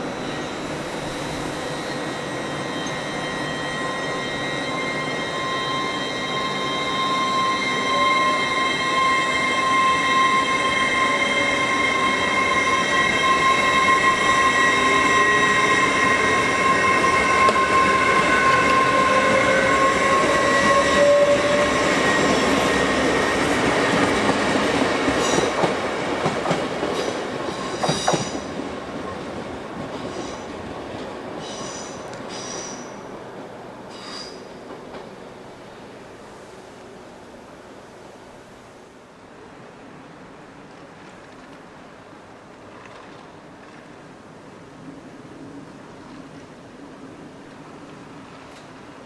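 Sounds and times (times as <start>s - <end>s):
train electrical whine: 0.0s - 28.5s
train wheel rumble: 6.6s - 36.2s.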